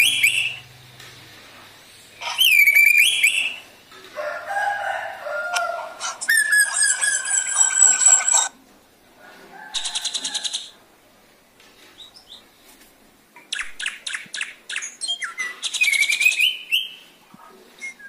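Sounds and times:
bird harsh calls and whistles: 0.0s - 0.7s, 2.0s - 3.8s, 5.5s - 8.5s, 9.8s - 10.8s, 13.5s - 17.2s, 17.8s - 18.0s.

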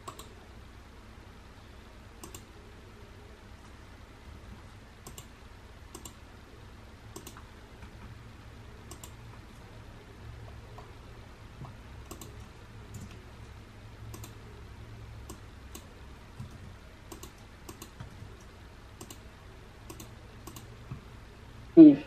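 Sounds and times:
mouse and keyboard clicks: 0.0s - 0.3s, 2.2s - 2.5s, 5.0s - 5.3s, 7.1s - 7.4s, 11.6s - 13.2s, 15.3s - 18.2s, 19.0s - 19.2s, 19.9s - 20.8s
low steady hum: 0.0s - 22.0s.

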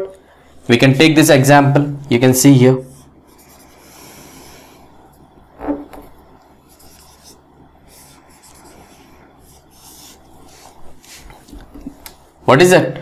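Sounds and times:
marker pen scratching on whiteboard: 2.8s - 4.6s, 5.6s - 12.0s.

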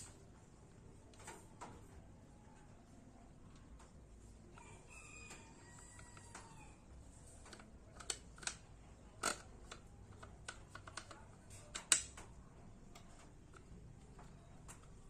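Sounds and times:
plastic clicks and knocks: 7.4s - 15.0s.

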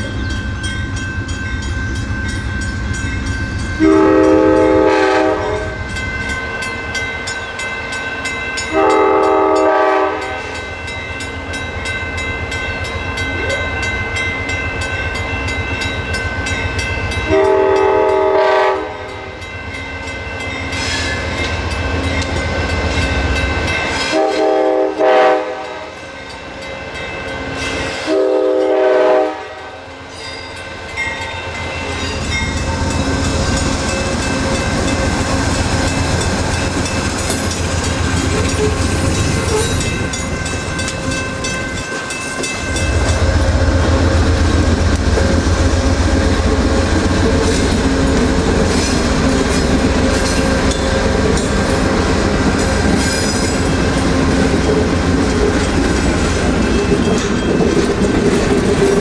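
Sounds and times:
crossing bells ringing: 0.0s - 59.0s
train rumbling: 0.0s - 59.0s
locomotive air horn blasts: 3.8s - 5.8s, 8.7s - 10.6s, 17.3s - 19.3s, 24.1s - 26.0s, 28.0s - 29.9s.

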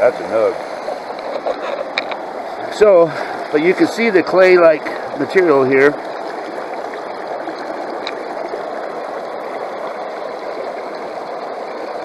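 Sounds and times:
water rushing through metal sluice: 0.0s - 12.0s.

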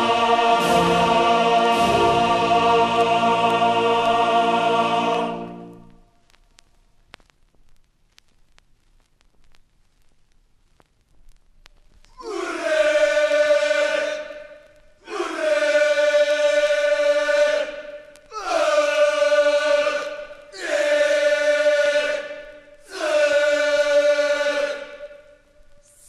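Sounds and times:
group singing in unison: 0.0s - 6.0s, 12.2s - 25.4s.

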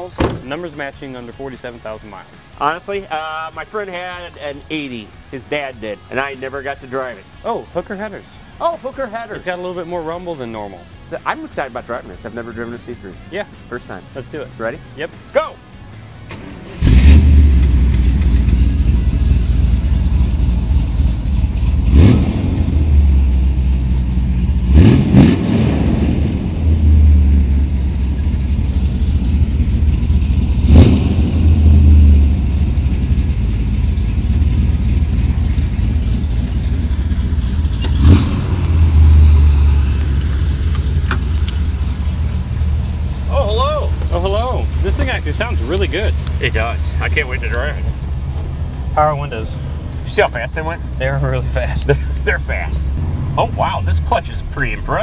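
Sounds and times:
car engine revving: 12.1s - 55.0s.

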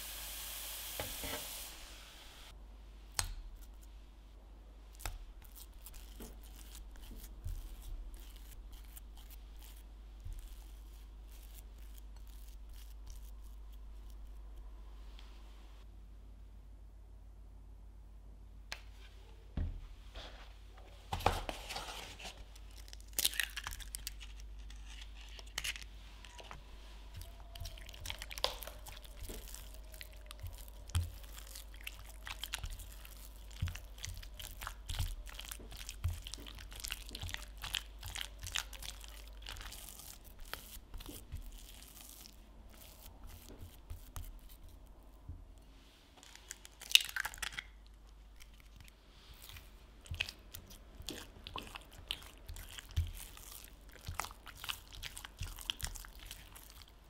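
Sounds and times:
spatula slapping sticky dough: 4.9s - 14.4s, 27.0s - 45.5s, 49.4s - 57.0s
egg cracking: 22.6s - 26.6s, 27.2s - 44.9s, 46.2s - 48.9s.

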